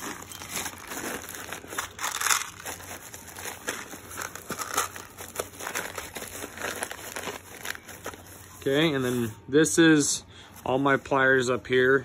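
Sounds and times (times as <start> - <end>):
plastic bags crinkling: 0.0 - 8.8.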